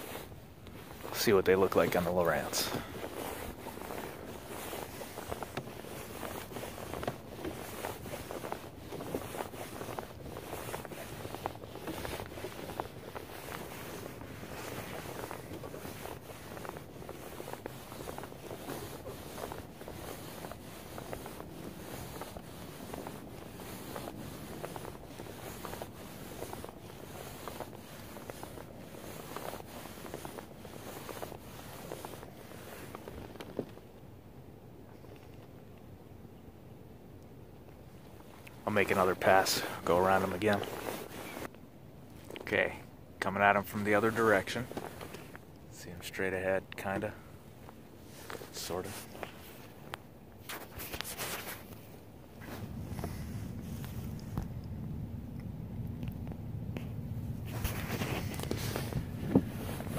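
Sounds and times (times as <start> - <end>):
water washing along kayak hull: 0.0 - 36.0, 37.7 - 59.9
wind buffeting microphone: 52.2 - 59.9.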